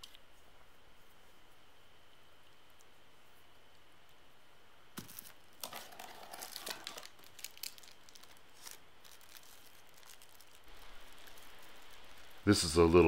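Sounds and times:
plastic packaging crinkling: 5.0 - 13.0.

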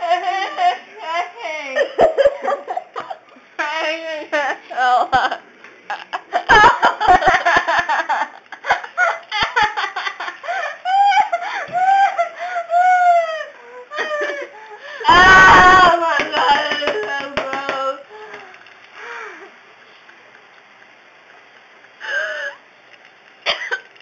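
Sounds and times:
girl laughing and squealing: 10.4 - 16.9
girl shrieking: 15.0 - 16.6.

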